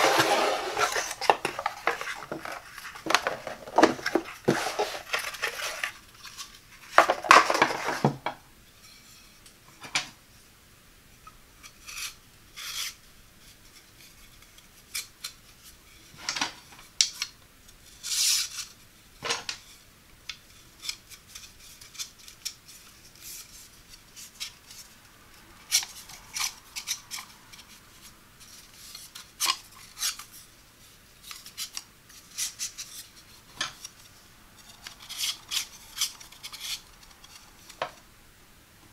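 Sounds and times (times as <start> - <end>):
wooden pole scraping in cardboard: 0.0 - 8.2
wooden dowels clicking and knocking: 0.0 - 8.4.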